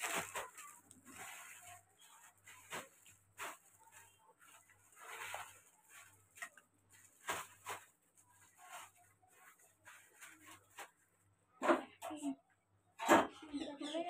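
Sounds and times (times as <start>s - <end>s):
plastic wrap crinkling: 0.0s - 11.2s.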